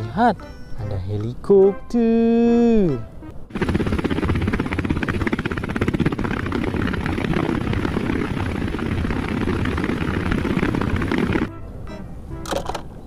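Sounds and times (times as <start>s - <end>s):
helicopter engine drone: 3.5s - 11.5s
helicopter rotor blades chopping: 3.5s - 11.5s.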